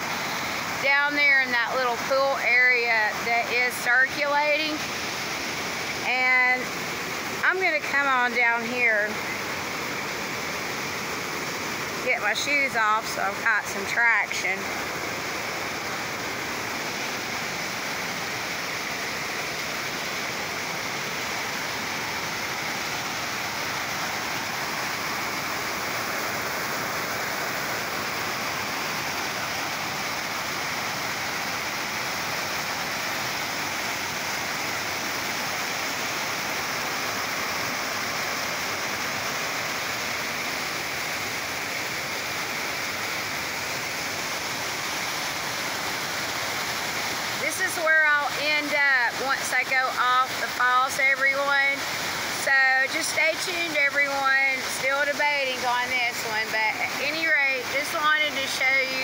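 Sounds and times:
river rapids rushing over rocks: 0.0 - 59.0.

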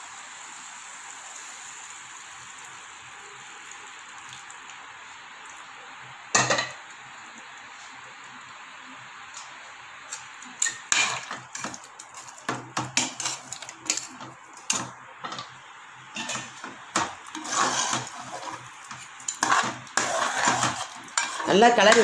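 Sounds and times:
spoon scraping metal pot: 10.6 - 15.5, 16.1 - 22.0.

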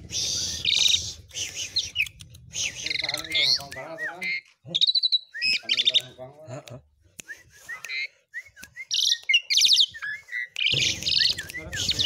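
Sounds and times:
short slurred whistles: 0.0 - 4.2, 7.2 - 12.0
starling singing: 0.0 - 6.2, 7.6 - 12.0.

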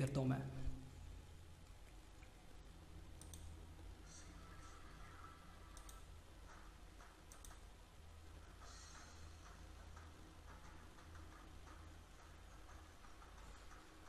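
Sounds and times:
low steady hum: 0.0 - 14.0
computer mouse clicks: 3.2 - 3.6, 5.7 - 7.7.

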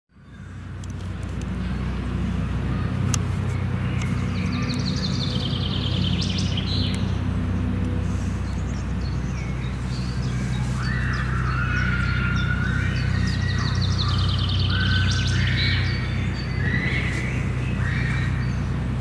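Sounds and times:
low mechanical hum: 0.1 - 19.0
bird chirps: 2.8 - 7.2, 8.2 - 18.8
bird singing a descending trill: 3.5 - 7.2, 8.6 - 18.7.

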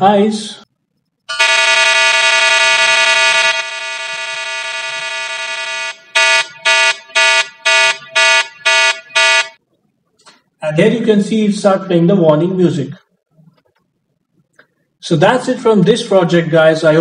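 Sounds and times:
alarm buzzing and beeping: 1.3 - 9.6.

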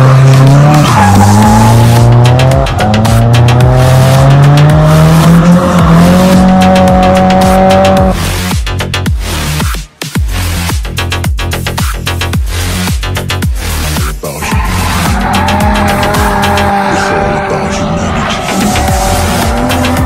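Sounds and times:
car engine revving high: 0.0 - 8.5, 14.4 - 20.0
tyres squealing: 0.4 - 3.5, 14.4 - 20.0.

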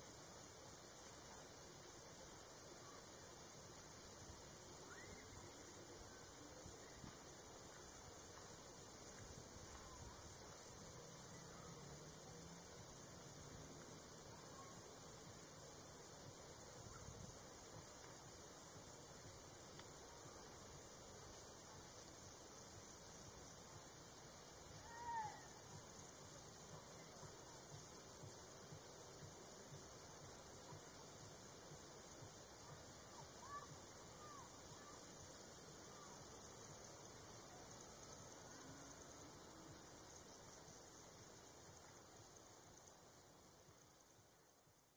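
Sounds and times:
crickets chirping: 0.0 - 44.9
faint bird chirps: 4.8 - 5.5.

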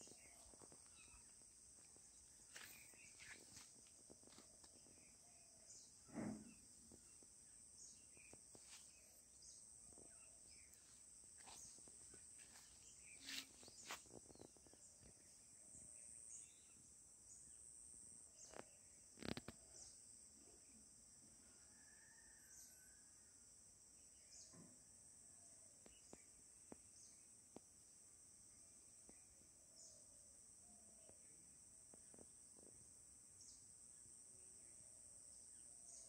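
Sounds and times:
high insect drone: 0.0 - 23.0
thump: 6.1 - 6.6.

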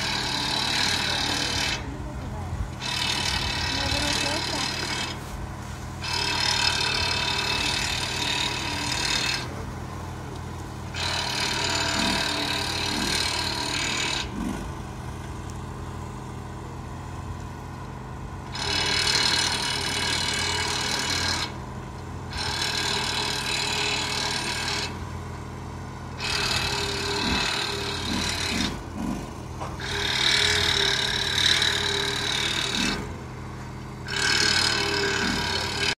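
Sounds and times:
harsh high mechanical noise: 0.0 - 36.0
machinery humming: 0.0 - 36.0.

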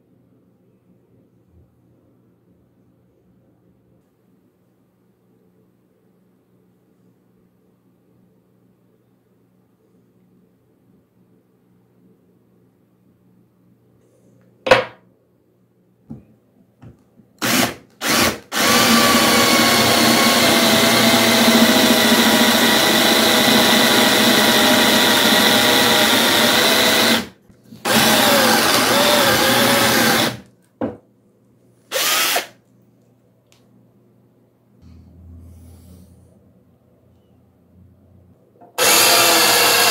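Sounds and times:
electric drill drilling into wood: 17.4 - 30.4, 31.9 - 32.5, 38.8 - 39.9.

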